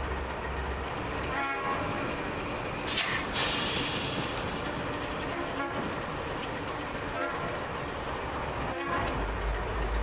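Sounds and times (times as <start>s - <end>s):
diesel locomotive idling: 0.0s - 10.0s
short loud hiss: 2.9s - 4.2s.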